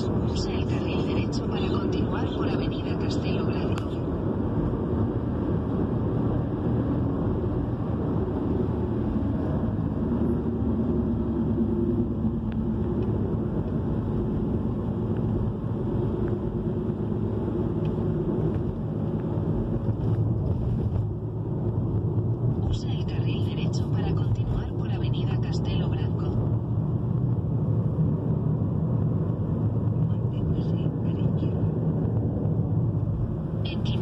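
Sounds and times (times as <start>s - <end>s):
car road and engine noise: 0.0s - 34.0s.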